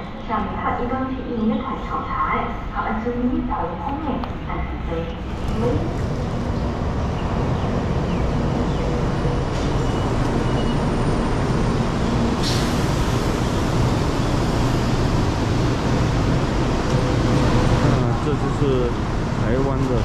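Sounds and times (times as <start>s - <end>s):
high speed train running: 5.2s - 20.0s.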